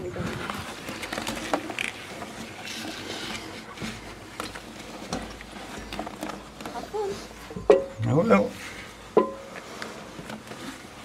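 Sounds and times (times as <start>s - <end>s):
knocks on metal ladder rungs: 7.7s - 8.0s, 9.2s - 9.5s
clothing rustling: 8.5s - 11.0s.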